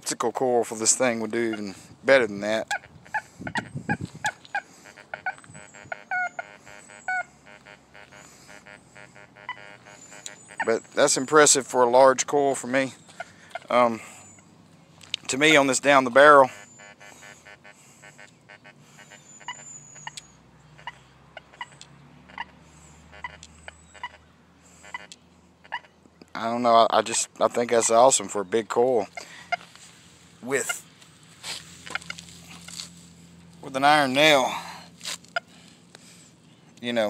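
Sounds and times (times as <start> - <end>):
metal detector beeping: 2.6 - 11.7, 15.8 - 21.0, 23.1 - 24.2.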